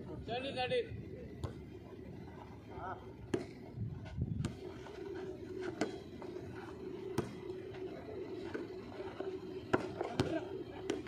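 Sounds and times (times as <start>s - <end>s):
volleyball struck by hand: 7.2s - 7.4s.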